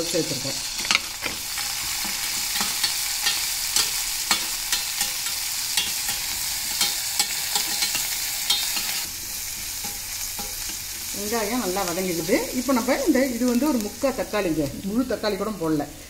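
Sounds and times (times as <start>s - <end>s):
food sizzling in hot oil: 0.0s - 16.0s
spatula scraping metal pan: 0.8s - 11.0s.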